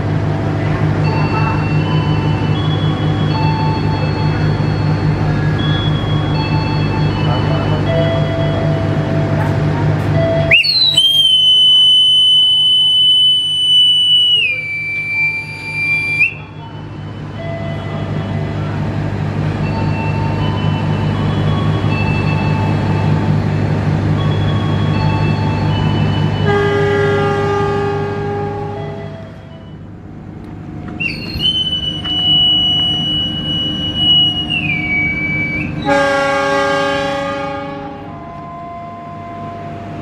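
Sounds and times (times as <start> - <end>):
diesel locomotive running: 0.0 - 40.0
whistle long blast: 10.4 - 16.5, 31.0 - 37.6
locomotive horn blast: 26.4 - 29.9, 31.8 - 40.0.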